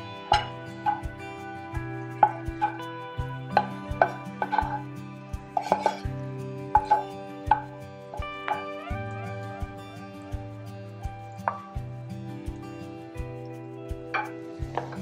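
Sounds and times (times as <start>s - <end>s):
background music: 0.0s - 15.0s
wooden spatula scraping a pan: 5.5s - 6.2s, 6.8s - 7.0s.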